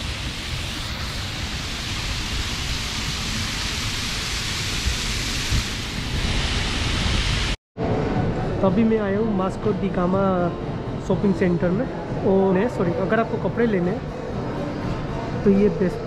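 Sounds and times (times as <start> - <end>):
fountain water splashing: 0.0 - 7.6.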